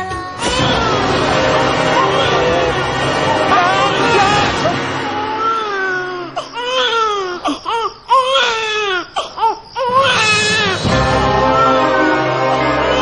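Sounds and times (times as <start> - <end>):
baby crying: 0.4 - 2.7, 3.4 - 10.8, 12.6 - 13.0.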